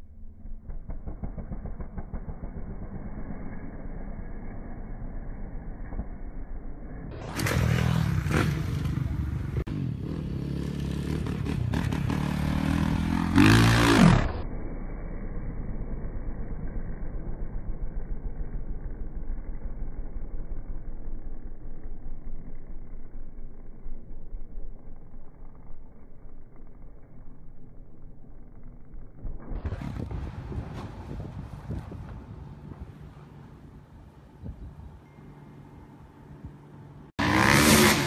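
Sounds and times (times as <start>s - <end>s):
dirt bike engines revving: 7.2s - 14.4s, 37.2s - 38.0s.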